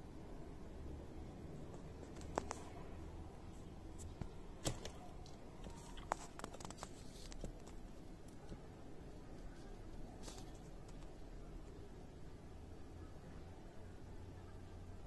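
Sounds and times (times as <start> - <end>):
small clicks and ticks: 4.1 - 8.7, 9.3 - 11.8.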